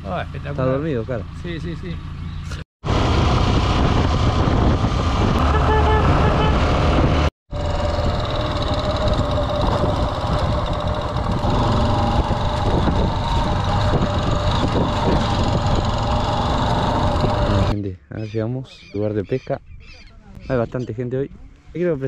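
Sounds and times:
motorcycle engine running: 0:00.1 - 0:17.8.

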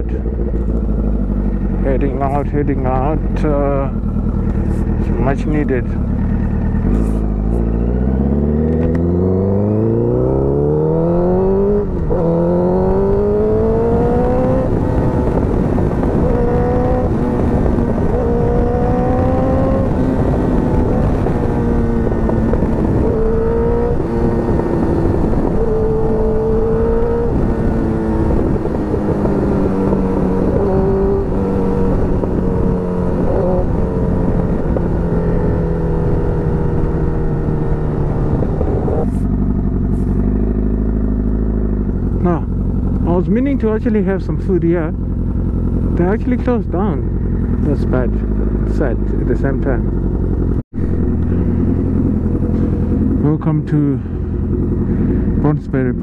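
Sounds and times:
wind noise: 0:00.0 - 0:43.7
motorcycle engine accelerating: 0:00.0 - 0:56.0.

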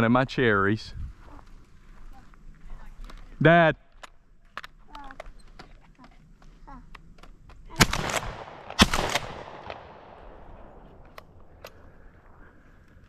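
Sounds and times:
shotgun shots with echo: 0:07.8 - 0:10.8.

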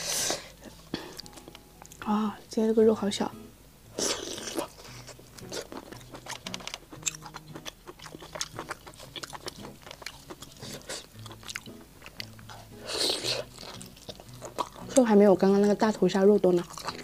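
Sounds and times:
short crackles of chewing: 0:04.0 - 0:15.0
close chewing with wet mouth clicks: 0:04.0 - 0:15.8, 0:16.4 - 0:17.0.

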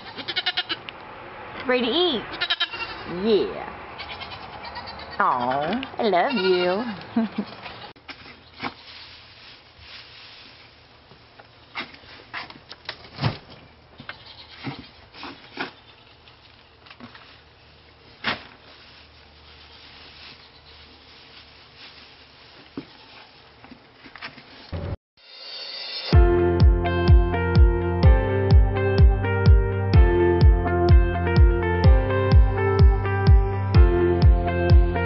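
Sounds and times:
hay rustling and snapping: 0:08.1 - 0:13.3, 0:15.1 - 0:24.8.

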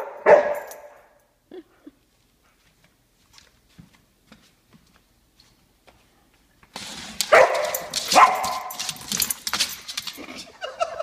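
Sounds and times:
dog barking: 0:00.0 - 0:01.0, 0:07.3 - 0:08.8
scuffling and clicking: 0:02.7 - 0:10.5.

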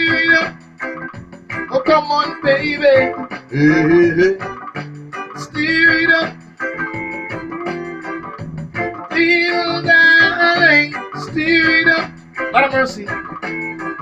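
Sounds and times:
man singing: 0:00.0 - 0:00.6, 0:01.7 - 0:04.6, 0:05.4 - 0:06.4, 0:09.1 - 0:13.3
electric guitar: 0:00.0 - 0:14.0
organ-like keyboard: 0:00.0 - 0:14.0.

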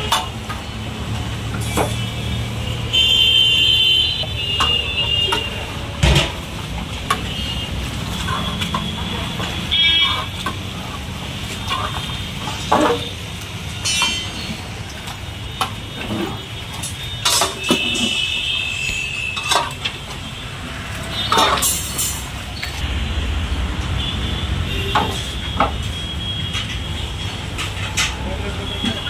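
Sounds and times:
street traffic hum: 0:00.0 - 0:29.0
metal serving utensils clinking: 0:13.8 - 0:15.1, 0:16.0 - 0:18.3, 0:19.1 - 0:20.0, 0:21.2 - 0:22.8, 0:26.4 - 0:29.0.

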